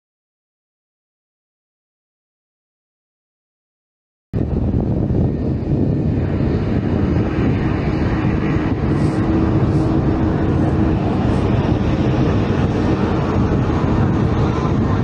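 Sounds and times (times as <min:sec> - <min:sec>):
propeller airplane engine rumble: 0:04.4 - 0:15.0.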